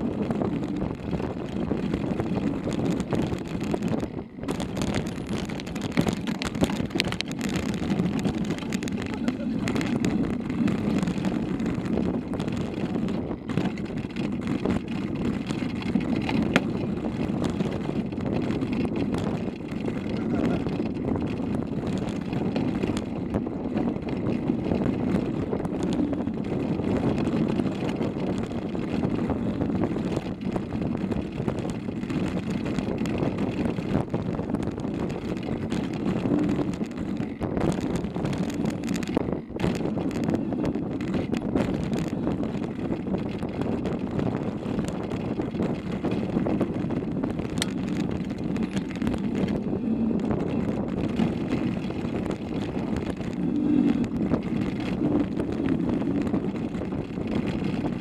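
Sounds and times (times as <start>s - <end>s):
bike rattling: 0.0s - 58.0s
tyres rumbling over gravel: 0.0s - 58.0s
wind on microphone: 0.0s - 58.0s.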